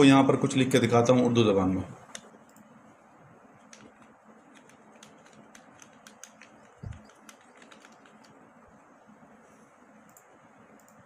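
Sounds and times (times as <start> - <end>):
keyboard key clicks: 3.6 - 8.4.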